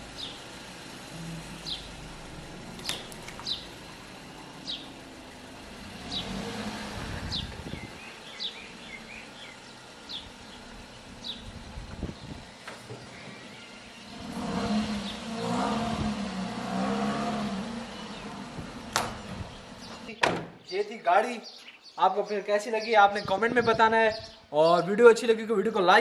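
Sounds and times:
car engine running: 0.0s - 20.1s
bird chirping: 1.4s - 2.0s, 2.8s - 5.0s, 7.2s - 15.3s, 19.1s - 24.9s.

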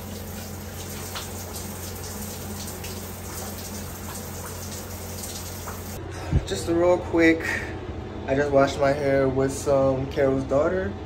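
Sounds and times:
shower water splashing on tiles: 0.0s - 6.0s.

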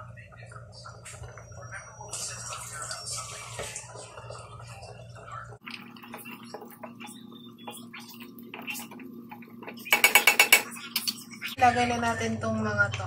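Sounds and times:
spoon tapping metal pot: 9.7s - 11.1s.

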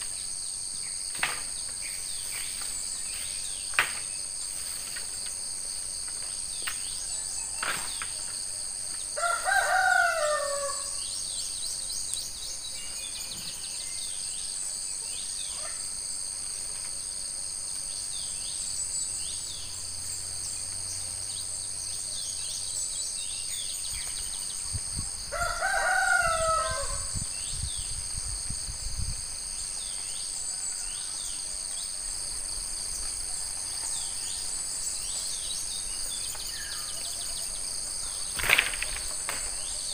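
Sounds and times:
high insect buzz: 0.0s - 39.9s
rooster crowing: 9.2s - 11.0s, 25.3s - 27.2s.

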